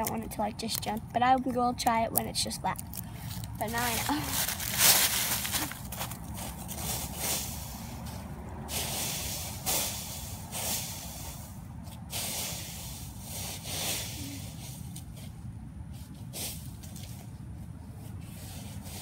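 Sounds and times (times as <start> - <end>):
dry leaves rustling: 2.7 - 19.0.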